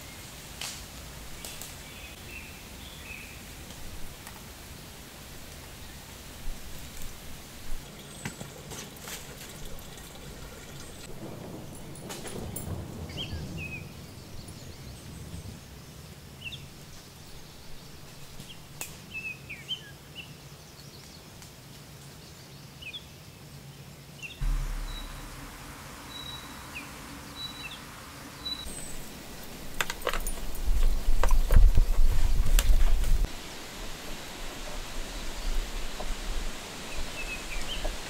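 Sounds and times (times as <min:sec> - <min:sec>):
songbirds chirping: 0:01.1 - 0:31.7
background hiss and hum: 0:24.4 - 0:29.9.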